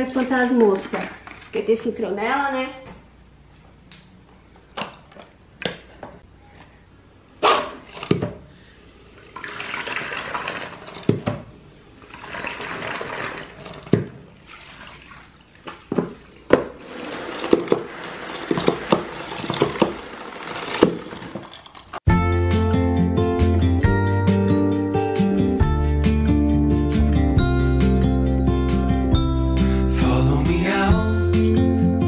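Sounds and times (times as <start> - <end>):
water sloshing and swishing: 9.2 - 11.3, 12.0 - 21.6.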